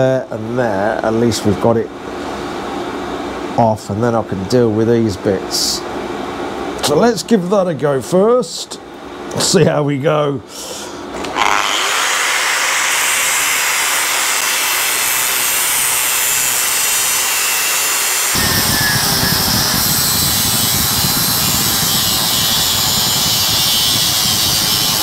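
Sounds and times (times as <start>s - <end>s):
angle grinder cutting steel: 11.2s - 25.0s.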